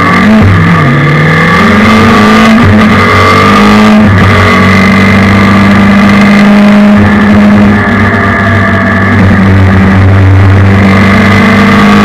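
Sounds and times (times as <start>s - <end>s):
motorcycle engine at full throttle: 0.0s - 12.0s.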